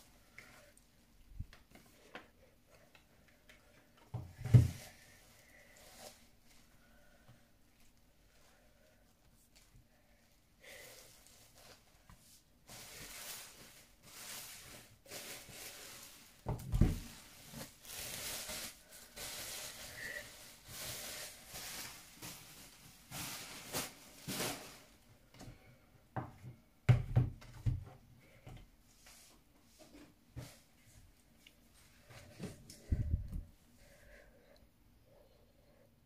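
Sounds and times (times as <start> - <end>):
bubble wrap crinkling: 10.7 - 25.0.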